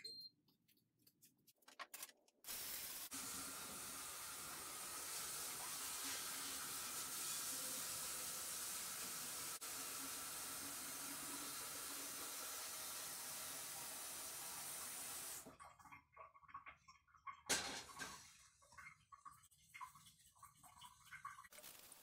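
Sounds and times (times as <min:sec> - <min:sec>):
faucet running into saucepan: 0:02.5 - 0:15.5.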